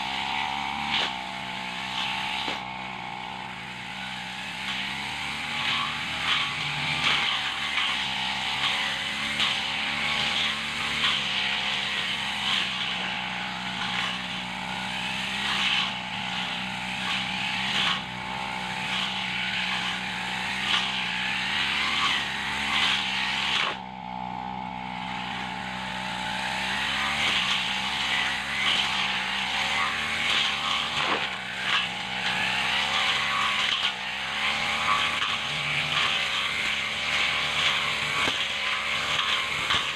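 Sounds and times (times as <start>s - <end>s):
brush cutter cutting grass: 0.0s - 39.9s.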